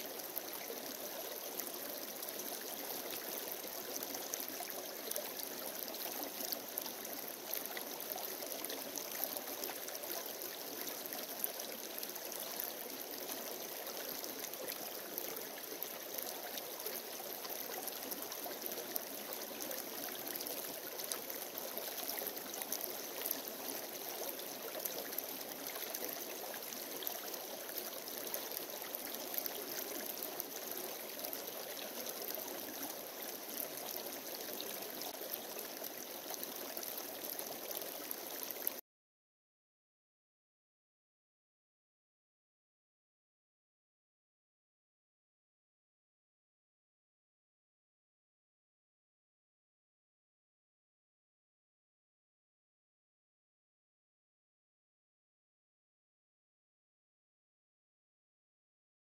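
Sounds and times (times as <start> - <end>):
creek babbling over rocks: 0.0 - 38.8.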